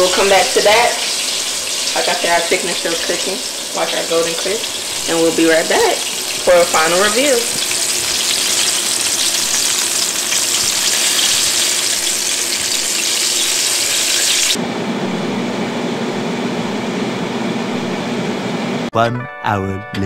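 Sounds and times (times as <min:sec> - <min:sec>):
oil sizzling and crackling: 0:00.0 - 0:14.6
air fryer fan humming: 0:00.0 - 0:18.9.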